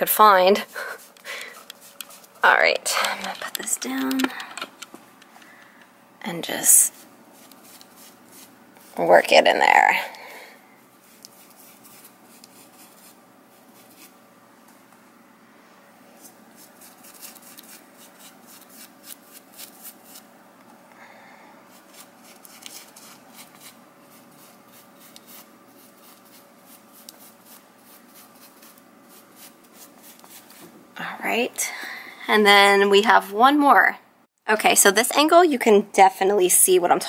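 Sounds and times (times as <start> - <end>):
brush scrubbing fabric: 0.0 - 2.5, 6.8 - 9.4, 11.0 - 14.2, 16.2 - 20.3, 21.7 - 30.7.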